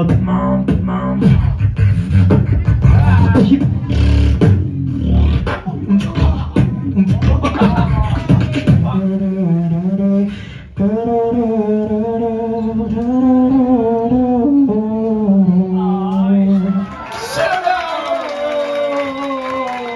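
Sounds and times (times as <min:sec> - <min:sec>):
beatbox percussive sounds: 0:00.0 - 0:15.5
person humming into a microphone: 0:00.0 - 0:16.7.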